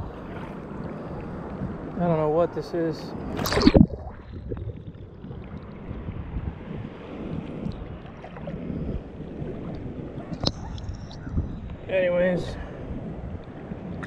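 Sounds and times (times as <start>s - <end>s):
water lapping: 0.0s - 2.2s, 3.0s - 11.9s
wind buffeting microphone: 0.0s - 14.0s.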